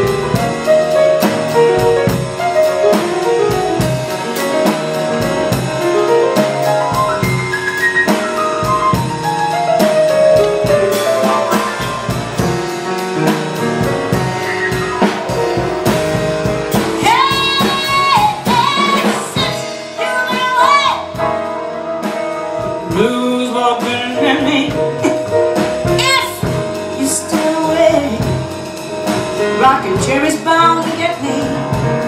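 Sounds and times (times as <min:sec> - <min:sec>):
jazz band with piano and drums: 0:00.0 - 0:32.0
woman singing with vibrato: 0:17.0 - 0:21.1, 0:26.0 - 0:28.4, 0:29.6 - 0:31.9.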